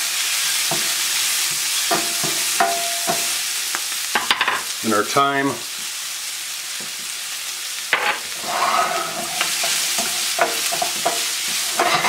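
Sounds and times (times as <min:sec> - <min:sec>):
food sizzling in a frying pan: 0:00.0 - 0:12.0
wooden spoon scraping a pan: 0:07.9 - 0:12.0.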